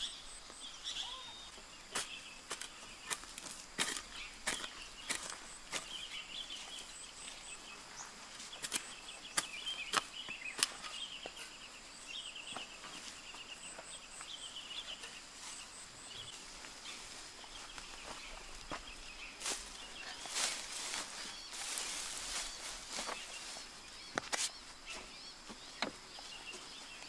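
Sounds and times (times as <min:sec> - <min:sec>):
chirping: 0:00.0 - 0:02.2
hoe chopping into soil: 0:01.9 - 0:06.0, 0:08.5 - 0:11.0.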